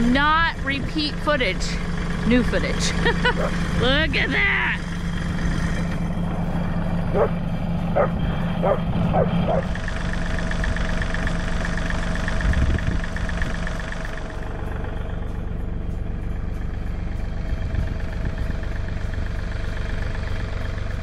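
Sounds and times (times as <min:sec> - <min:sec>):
engine humming: 0:00.0 - 0:21.0.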